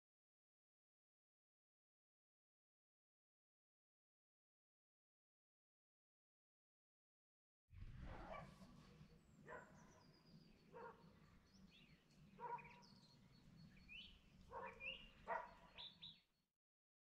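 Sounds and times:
dog barking faintly: 8.1 - 10.0, 10.7 - 11.1, 12.4 - 13.0, 14.5 - 15.9
small birds chirping: 8.3 - 16.4.

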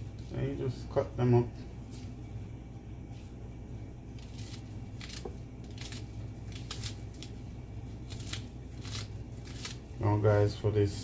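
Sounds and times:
steady low hum: 0.0 - 11.0
knife slicing scallions: 4.2 - 7.4, 8.0 - 9.9.

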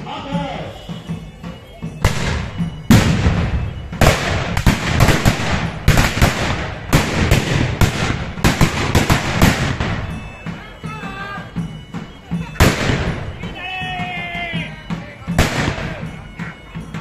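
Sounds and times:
gunshots with echo: 2.0 - 10.1, 15.4 - 16.0.

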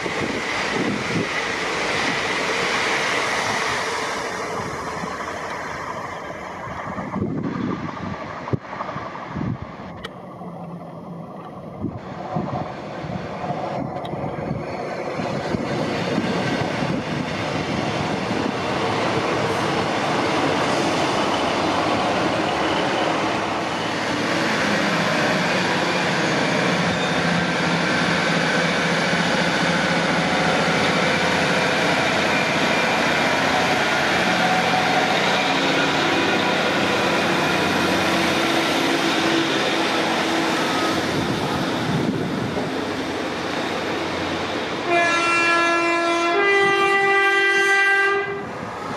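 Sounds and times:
diesel train approaching: 0.0 - 48.9.

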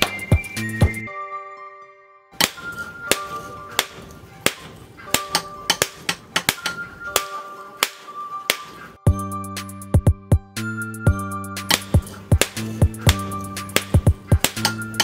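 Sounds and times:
background music: 0.0 - 15.0
hammer striking metal on anvil: 2.4 - 8.9, 11.6 - 15.0.

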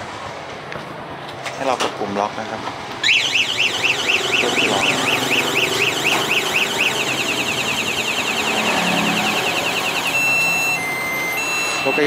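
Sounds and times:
motorcycle alarm siren: 3.0 - 12.0.

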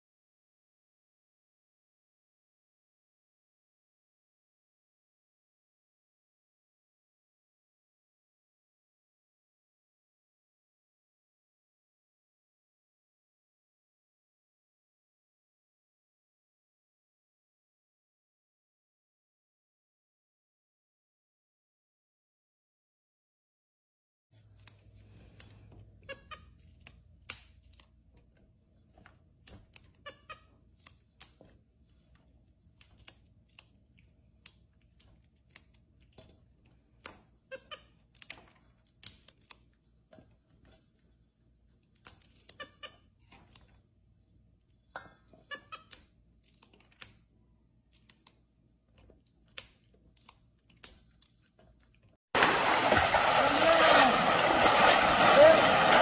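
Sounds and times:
green beans snapping: 26.5 - 28.0, 30.7 - 31.5, 32.7 - 37.3, 38.0 - 39.8, 41.9 - 42.6, 45.8 - 48.4, 49.0 - 51.6.

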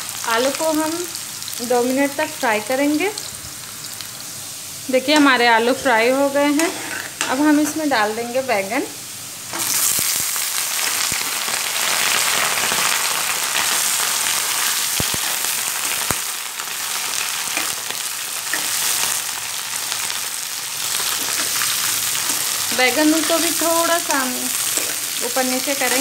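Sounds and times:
vegetables sizzling in hot oil: 0.0 - 26.0.

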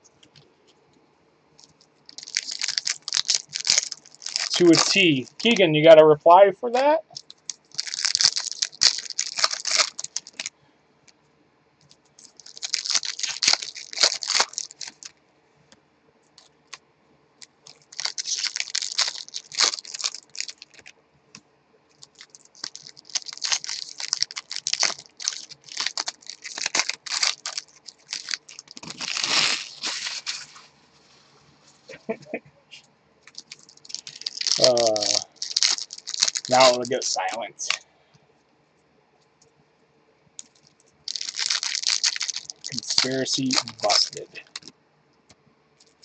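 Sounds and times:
foil wrappers tearing and crinkling: 1.6 - 5.6, 7.1 - 10.5, 12.2 - 15.1, 17.4 - 20.9, 22.0 - 30.6, 33.3 - 37.8, 40.4 - 44.7.

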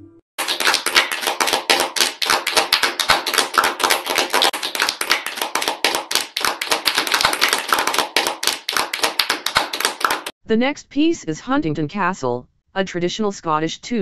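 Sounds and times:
crowd applauding: 0.4 - 10.3.

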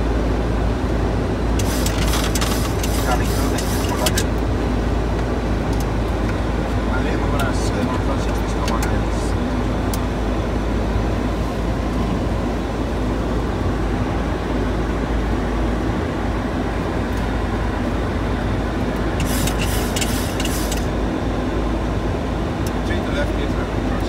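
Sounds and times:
airflow rushing in cockpit: 0.0 - 24.0.

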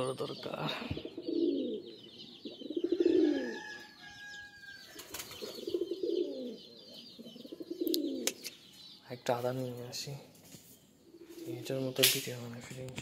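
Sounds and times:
pigeons cooing: 0.0 - 8.8, 10.4 - 12.3.

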